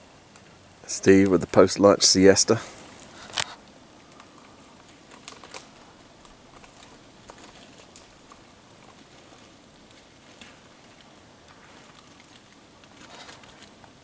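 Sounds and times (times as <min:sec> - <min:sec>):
faint outdoor hiss: 0:00.0 - 0:14.0
small clicks and ticks: 0:03.0 - 0:14.0.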